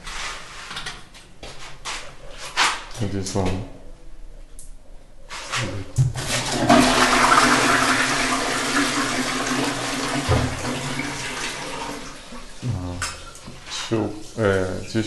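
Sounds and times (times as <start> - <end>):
water rushing into toilet bowl: 6.0 - 15.0.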